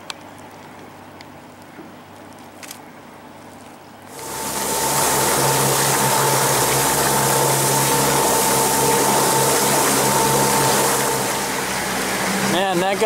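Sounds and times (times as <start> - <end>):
boat engine humming: 0.0 - 13.0
water rushing along boat hull: 4.0 - 13.0.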